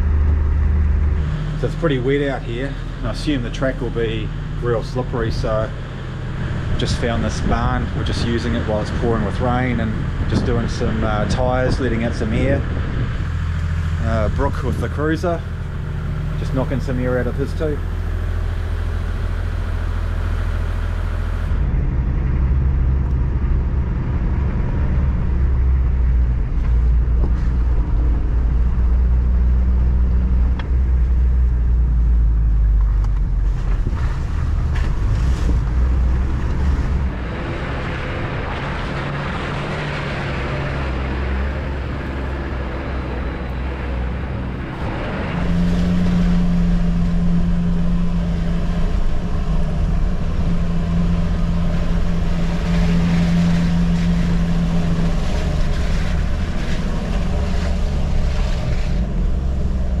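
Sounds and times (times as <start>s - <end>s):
vehicle engine running: 0.0s - 60.0s
tyre and road noise on gravel: 24.6s - 60.0s.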